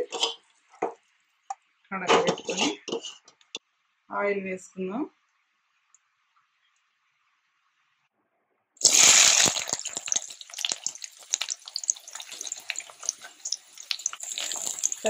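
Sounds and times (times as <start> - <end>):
onions sizzling in hot oil: 8.8 - 15.0.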